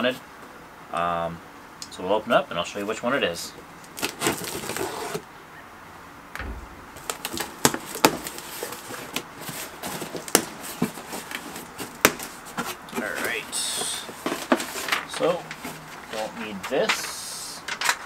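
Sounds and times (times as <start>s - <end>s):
cardboard clicks and rustles: 4.0s - 5.2s, 14.2s - 15.8s.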